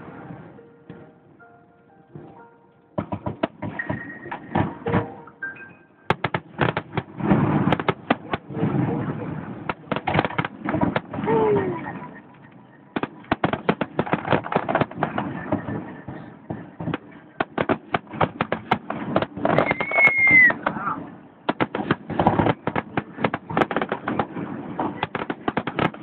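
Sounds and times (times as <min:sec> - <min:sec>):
fireworks bangs and crackles: 0:02.1 - 0:05.3, 0:06.1 - 0:26.0
firework whistle: 0:19.4 - 0:21.0.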